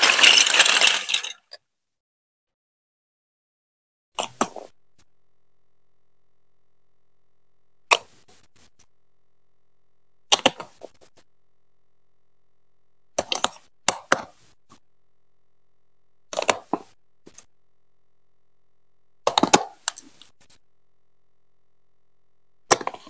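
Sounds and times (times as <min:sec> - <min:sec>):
plastic pieces clacking: 0:00.0 - 0:01.6.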